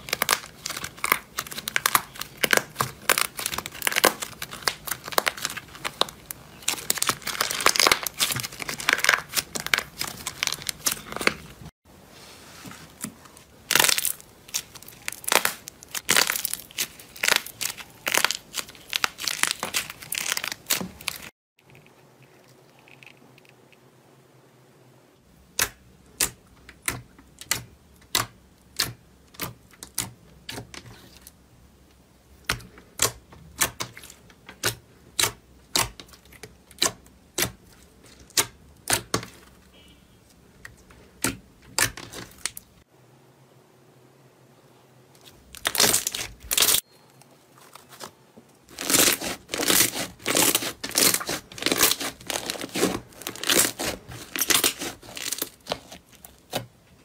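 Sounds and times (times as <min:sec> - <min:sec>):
slime crackling when squeezed: 0:00.0 - 0:11.4, 0:13.7 - 0:21.3, 0:45.6 - 0:46.8, 0:48.7 - 0:56.3.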